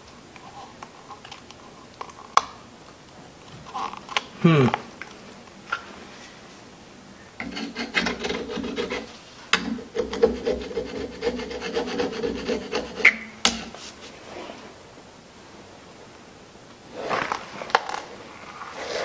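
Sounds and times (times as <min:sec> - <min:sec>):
metal tool scraping plastic: 0:07.4 - 0:14.0.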